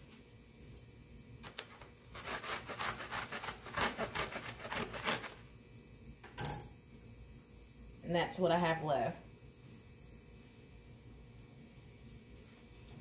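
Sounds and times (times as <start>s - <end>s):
knife sawing paper towels: 2.1s - 5.4s.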